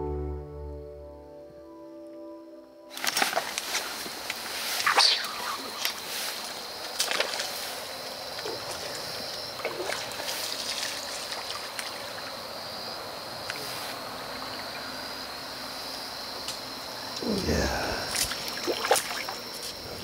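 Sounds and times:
water lapping at the edge: 3.0 - 12.8, 17.8 - 20.0.

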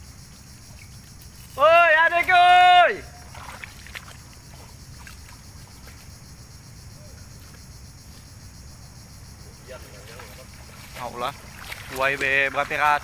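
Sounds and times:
water sloshing: 2.2 - 6.2, 9.7 - 13.0.

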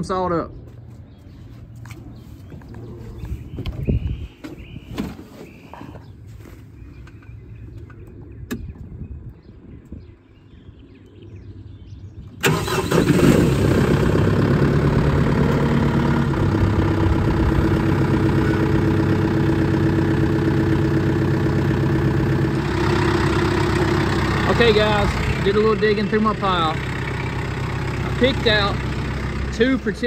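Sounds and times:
tractor engine starting and idling: 12.4 - 30.0.

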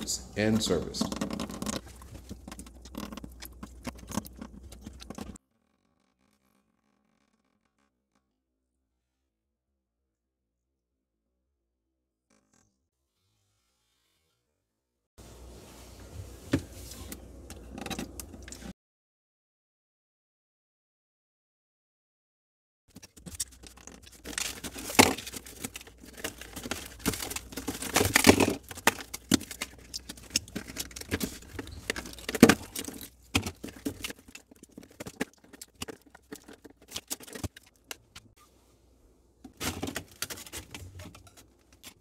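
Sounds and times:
ice scraping and rustling: 22.9 - 37.8
sharp clicks of ice and metal: 22.9 - 38.4.

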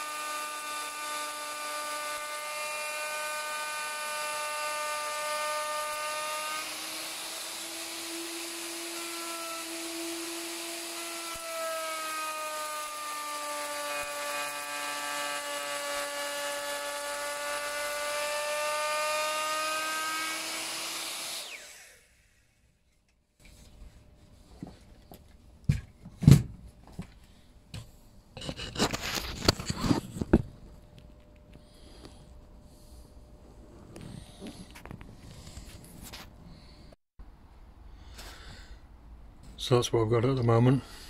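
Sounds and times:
router cutting wood: 0.0 - 22.3
router winding down: 0.0 - 22.3.

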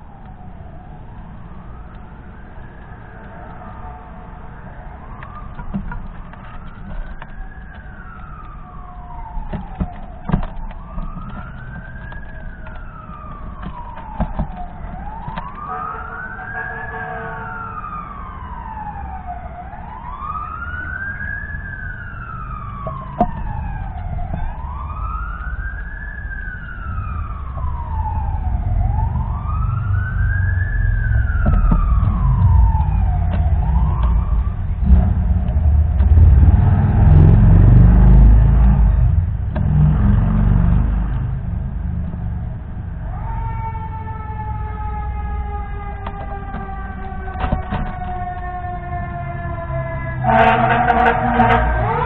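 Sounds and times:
emergency siren wailing: 0.0 - 52.0
low rumble: 26.8 - 42.8.

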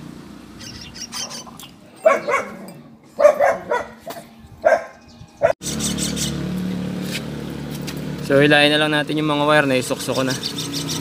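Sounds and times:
dog barking: 1.2 - 2.6, 3.2 - 5.6.

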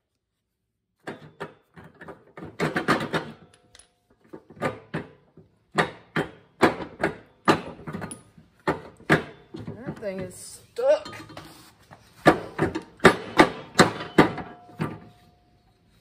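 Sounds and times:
sharp metal clanks and knocks: 12.2 - 15.2.

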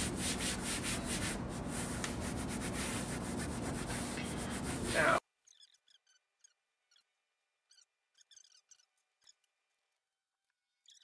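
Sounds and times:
hand sanding wooden panel: 0.0 - 5.2.

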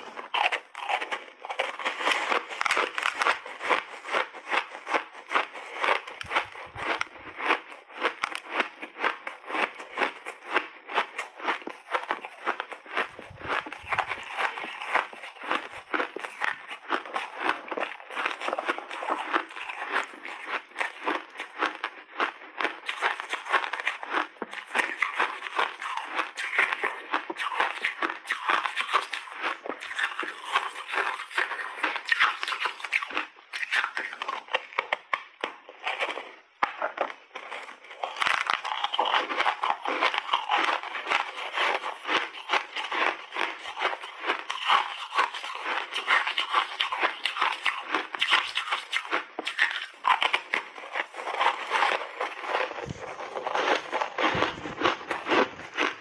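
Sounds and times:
crunching snowballs being chewed: 0.0 - 56.0.

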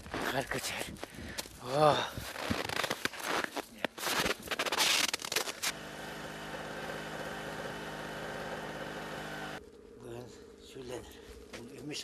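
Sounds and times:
crunching in snow: 0.0 - 5.9
engine idling: 5.7 - 9.6.

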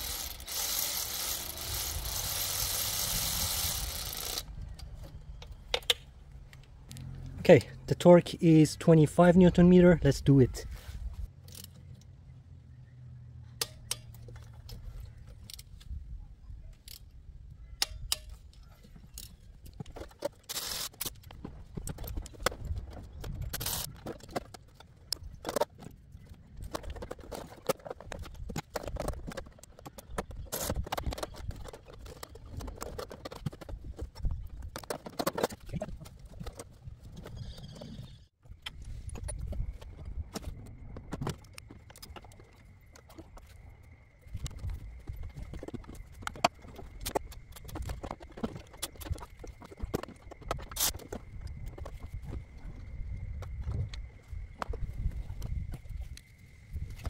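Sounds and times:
ratchet and torque wrench clicks: 0.0 - 4.5, 20.5 - 21.2.

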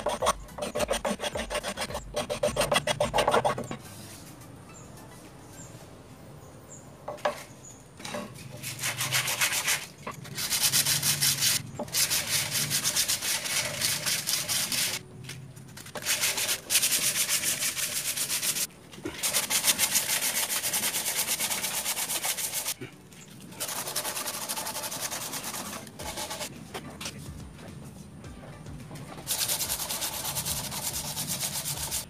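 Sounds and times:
sandpaper rubbing wood: 0.0 - 3.8, 8.6 - 15.0, 15.8 - 22.8, 23.6 - 26.5, 29.2 - 32.0.

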